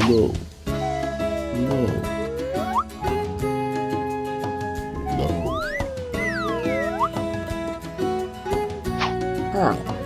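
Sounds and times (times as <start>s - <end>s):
children's background music: 0.0s - 10.0s
cartoon whistle swoops: 4.9s - 7.2s.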